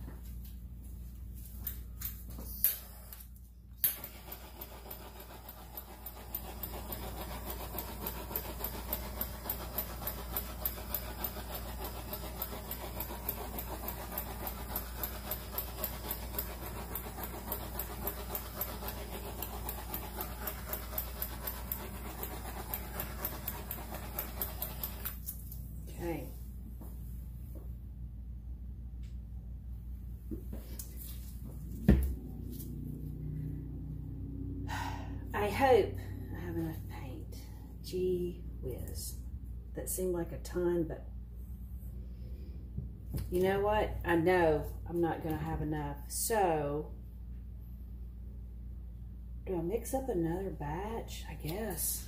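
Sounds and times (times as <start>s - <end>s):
blow dryer blowing: 3.8s - 25.2s.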